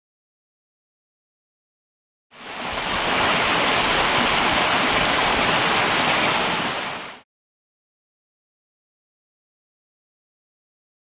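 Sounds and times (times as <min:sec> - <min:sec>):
stream water rushing: 0:02.4 - 0:07.2.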